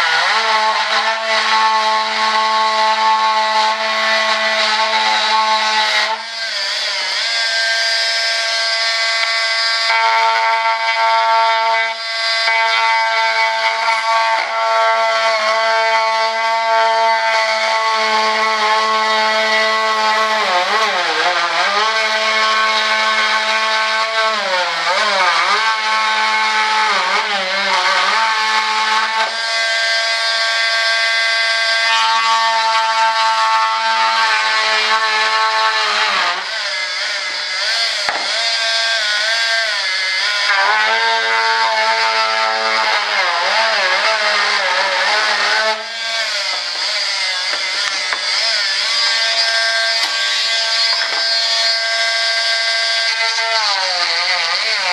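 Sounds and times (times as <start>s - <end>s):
electric cutting tool whining: 0.0s - 54.9s.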